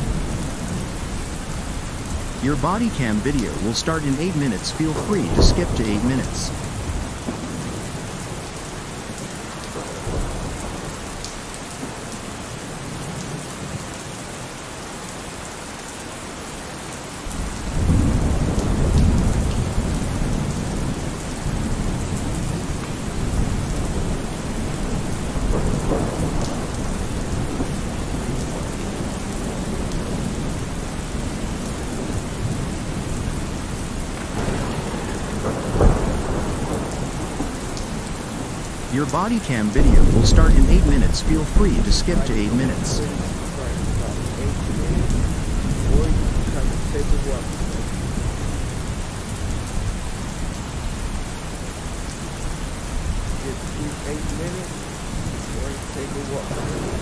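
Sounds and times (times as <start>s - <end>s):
steady rain hiss: 0.0s - 57.0s
rolling thunder: 34.1s - 38.6s.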